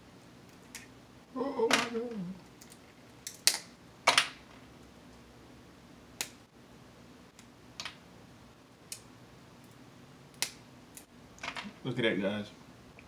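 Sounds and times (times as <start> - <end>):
crab shell cracking: 2.5 - 3.7, 10.3 - 11.1.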